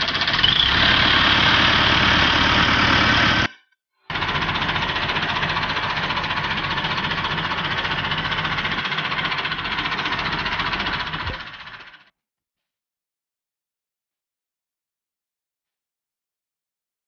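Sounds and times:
diesel tractor engine idling: 0.0 - 3.5, 4.1 - 12.1.

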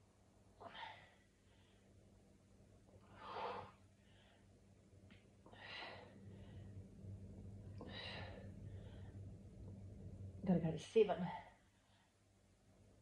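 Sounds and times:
woman breathing hissily: 3.0 - 4.5.

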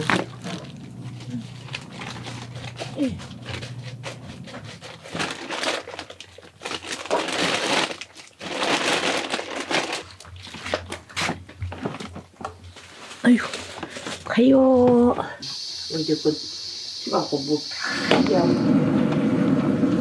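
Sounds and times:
plastic glove crinkling: 0.0 - 14.8.

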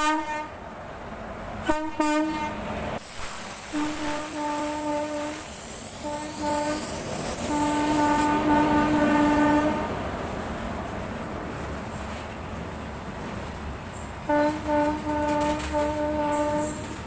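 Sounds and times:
locomotive horn blasts: 0.0 - 0.6, 1.6 - 2.6, 3.7 - 10.0, 14.3 - 17.0.

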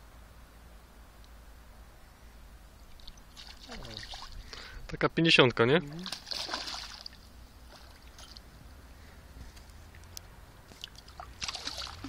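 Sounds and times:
faint water movement: 2.0 - 4.9, 5.8 - 12.0
fish splashing in water: 3.0 - 4.4, 6.0 - 8.4, 10.8 - 12.0
light ticks: 9.6 - 11.0.

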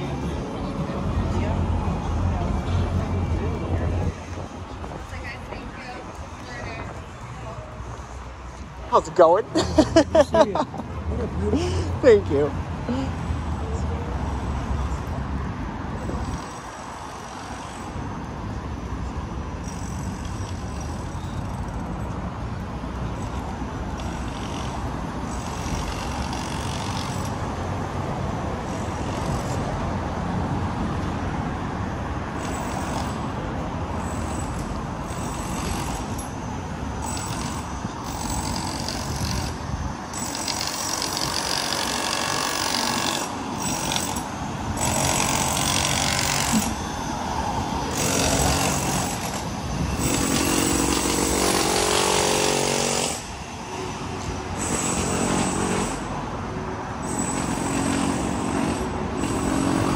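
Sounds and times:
passing city traffic: 0.0 - 59.9.

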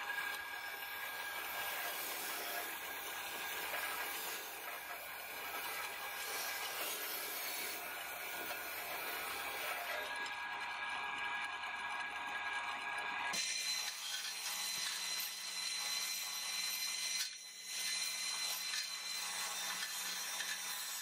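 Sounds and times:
grinder motor tone: 0.0 - 12.6.

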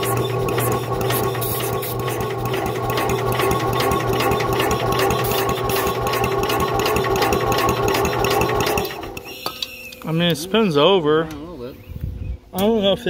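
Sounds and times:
engine cranking with starter motor: 0.0 - 9.7.

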